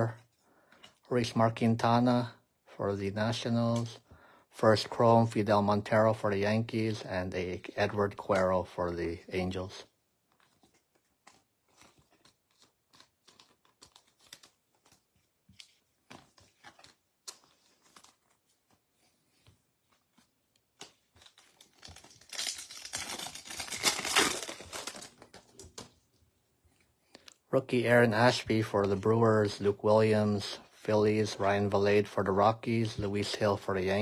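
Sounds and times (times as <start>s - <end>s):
cards rustling and clicking: 10.2s - 26.1s
wrapper torn open crinkling: 10.3s - 18.6s, 19.9s - 25.9s.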